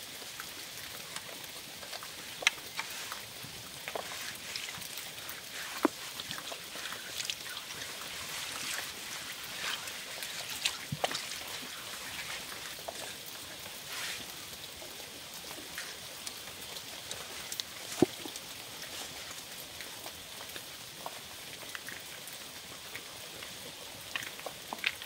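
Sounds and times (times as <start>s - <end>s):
steady hiss: 0.0s - 21.6s
water splashing onto stone: 0.2s - 19.6s
hand rubbing wet stone: 0.6s - 20.1s.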